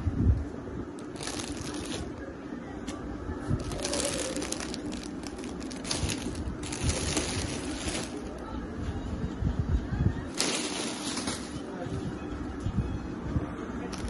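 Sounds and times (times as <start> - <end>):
plastic bags crinkling: 1.0 - 2.1, 3.6 - 8.4, 10.3 - 11.6.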